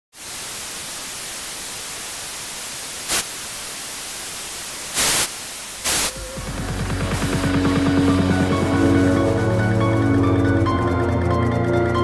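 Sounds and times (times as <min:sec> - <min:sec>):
static hiss: 0:00.1 - 0:10.3
pulsing electronic music beat: 0:06.0 - 0:12.0.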